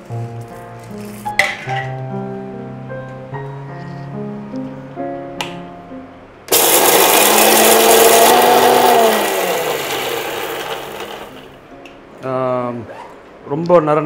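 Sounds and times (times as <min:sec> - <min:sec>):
mixer grinder grinding spices: 0:06.5 - 0:11.6
motor whine winding down: 0:06.5 - 0:11.6.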